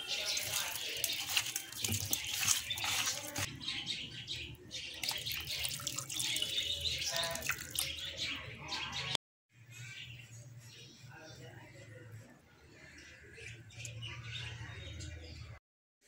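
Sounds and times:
wet squelching and splashing: 0.0 - 3.5, 4.9 - 8.0.

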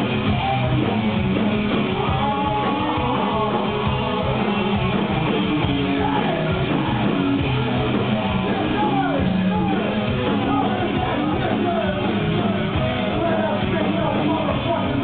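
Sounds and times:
distorted electric guitars: 0.0 - 15.0
drums: 0.0 - 15.0
person singing: 1.9 - 4.6.

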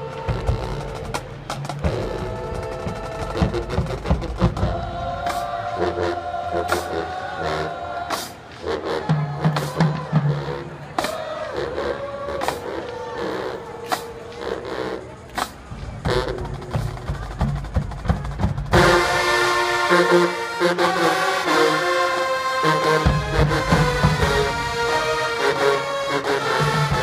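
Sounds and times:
drumline sharp hits: 0.0 - 11.4, 15.3 - 21.1, 22.6 - 27.0
brass chords: 0.0 - 27.0
marching band playing: 0.0 - 27.0.

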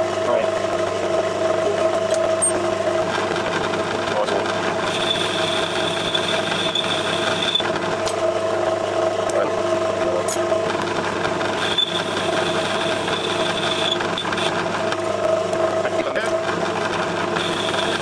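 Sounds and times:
lathe running: 0.0 - 18.0.

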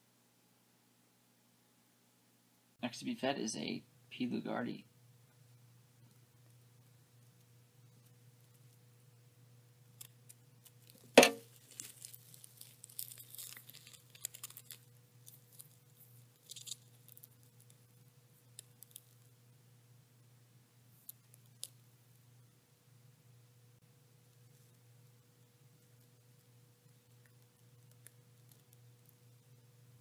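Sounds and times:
sharp knock of spider strike: 11.2 - 11.4
silk crackling and rustling: 11.5 - 15.7.

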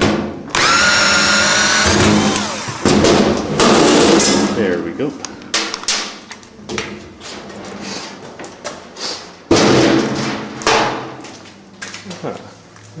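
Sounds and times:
heavy metal panel thumps: 9.5 - 11.2.

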